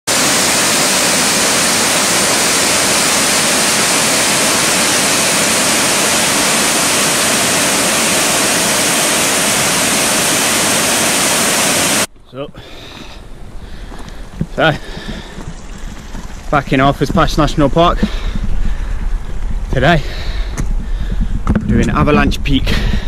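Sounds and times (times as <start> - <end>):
waterfall rushing: 0.1 - 12.1.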